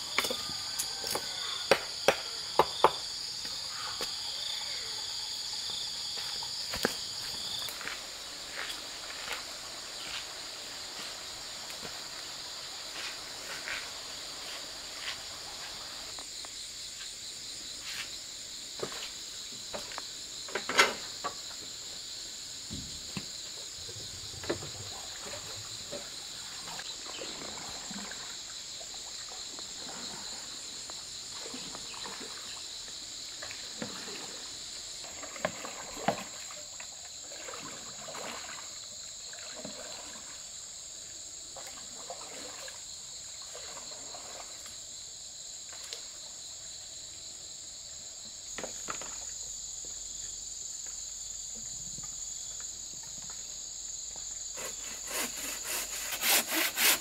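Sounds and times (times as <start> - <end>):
water sloshing and trickling: 22.7 - 47.2, 47.9 - 55.4.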